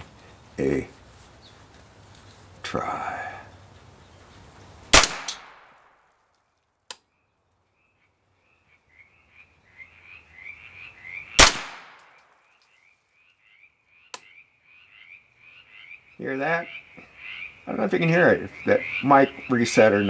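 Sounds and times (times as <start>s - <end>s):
pistol shots: 4.9s - 6.0s, 11.4s - 12.2s.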